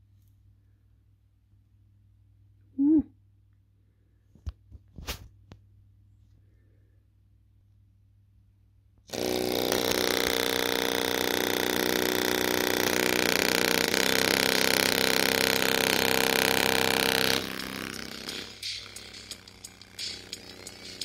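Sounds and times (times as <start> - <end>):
distorted speaker blare: 9.2 - 21.0.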